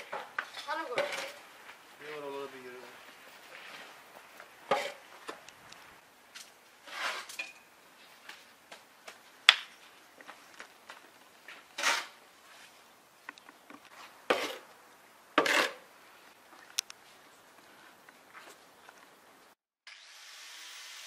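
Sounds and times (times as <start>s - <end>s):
shovel scraping sandy soil: 4.7s - 5.1s, 6.8s - 7.5s, 11.7s - 12.8s, 13.9s - 14.7s, 15.4s - 15.9s.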